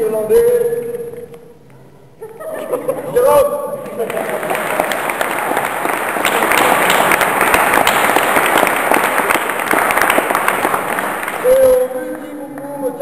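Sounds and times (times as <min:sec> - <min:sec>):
crowd applauding: 0:03.9 - 0:12.3.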